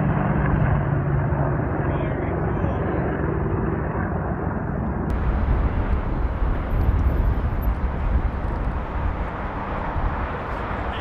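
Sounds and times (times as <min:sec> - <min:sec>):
helicopters flying past: 0:00.0 - 0:11.0.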